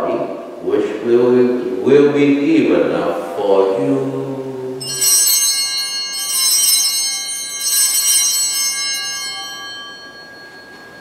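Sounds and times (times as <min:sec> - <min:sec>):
bells ringing: 0:04.8 - 0:11.0.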